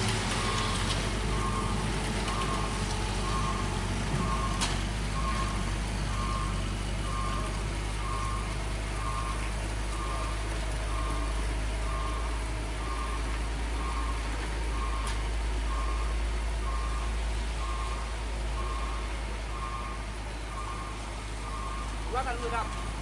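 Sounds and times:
truck engine rumbling: 0.0 - 23.0.

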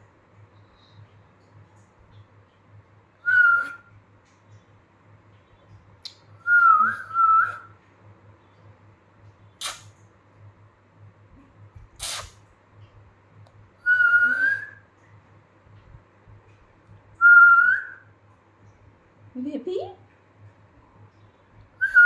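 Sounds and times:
woman whistling: 3.2 - 3.9, 6.5 - 7.7, 13.8 - 14.8, 17.2 - 18.0, 21.8 - 22.0.

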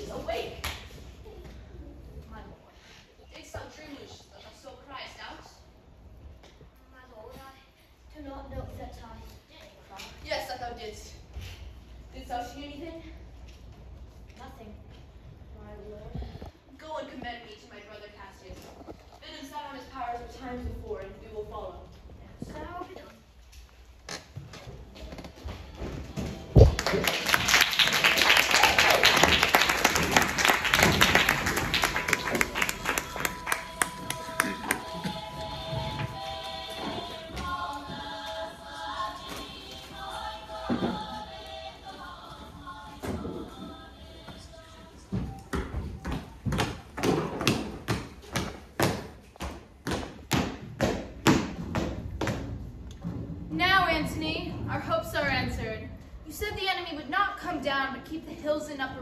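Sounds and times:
audience applause: 26.7 - 35.0.

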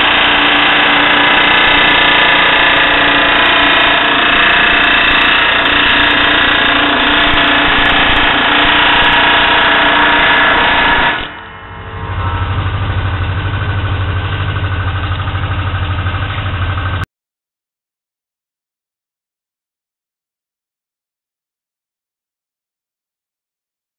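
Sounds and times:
pneumatic air hammer on sheet metal: 0.0 - 11.8.

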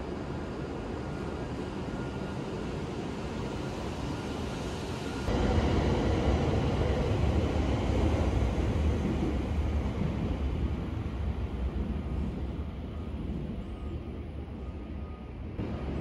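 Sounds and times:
train rumbling: 3.8 - 16.0.

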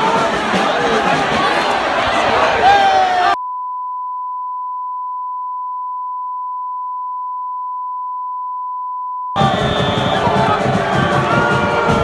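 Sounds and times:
crowd chanting and cheering: 0.0 - 3.4, 9.4 - 12.0.

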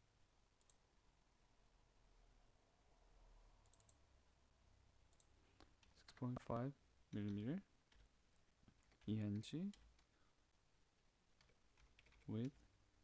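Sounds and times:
faint computer mouse clicks: 0.6 - 0.8, 3.6 - 4.0, 5.1 - 6.5.

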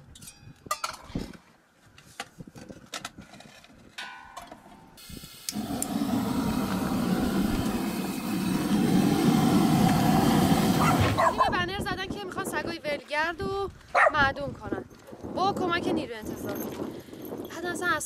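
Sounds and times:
gas burner rushing: 5.0 - 11.4.

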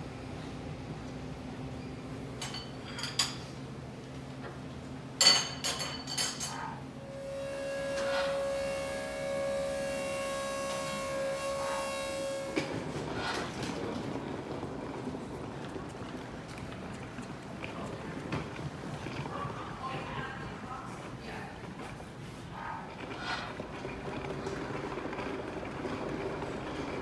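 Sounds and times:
metal and crockery clinking: 2.4 - 3.5, 5.2 - 6.7
machine drone: 6.8 - 17.3.

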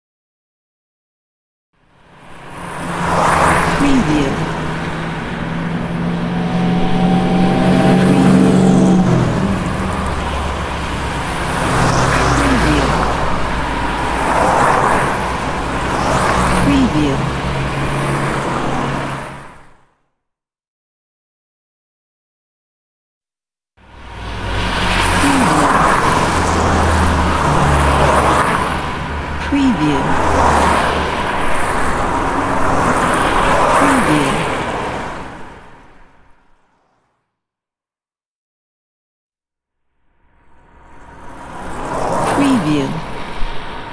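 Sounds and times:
cars driving past: 1.8 - 19.8, 23.8 - 37.1, 40.0 - 43.9
road traffic passing: 1.8 - 19.8, 23.8 - 37.0, 40.0 - 43.9
steady engine note: 3.8 - 18.2.

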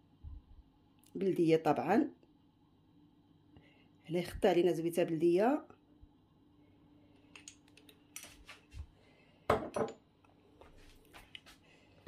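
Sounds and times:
glass and dishes clinking: 9.5 - 10.0.

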